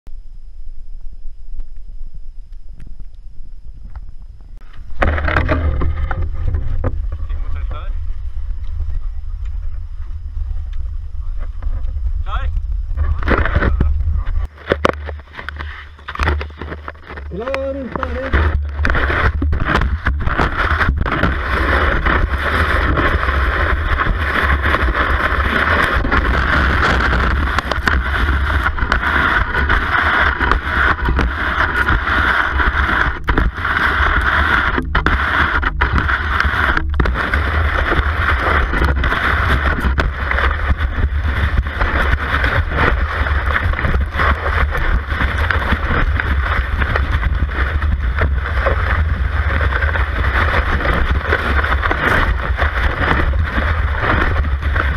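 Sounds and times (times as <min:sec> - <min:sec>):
skis knocking: 0:04.6 - 0:07.9, 0:13.0 - 0:54.9
skis hissing over snow: 0:19.9 - 0:54.9.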